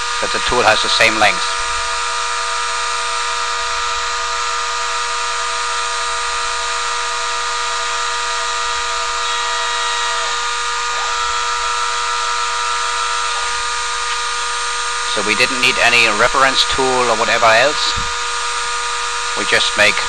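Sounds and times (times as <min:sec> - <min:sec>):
milling machine spindle whine: 0:00.0 - 0:20.0.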